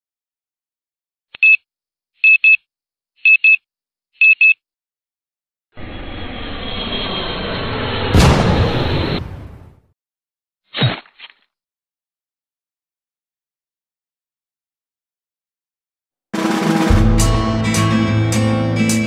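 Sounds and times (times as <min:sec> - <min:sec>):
sharp hit: 0:05.8 - 0:09.7, 0:16.4 - 0:18.0
whoosh: 0:05.8 - 0:09.8.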